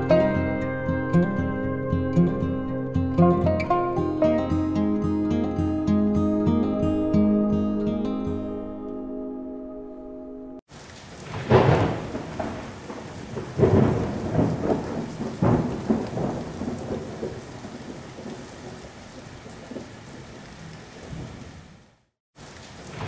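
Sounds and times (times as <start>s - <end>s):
steady rain: 10.7s - 23.0s
thunder rumbling: 11.2s - 21.6s.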